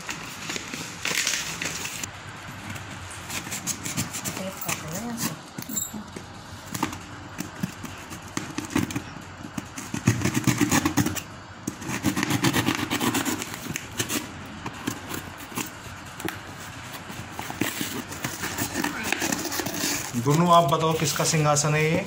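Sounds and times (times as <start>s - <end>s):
small crackles and scrapes: 13.2s - 22.0s.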